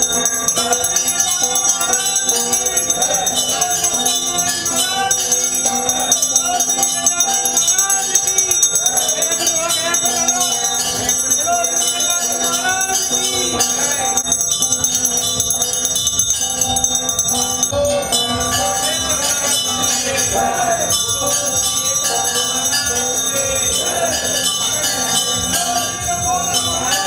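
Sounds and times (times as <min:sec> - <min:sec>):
crowd of voices: 0:00.0 - 0:27.0
temple bells ringing: 0:00.0 - 0:27.0.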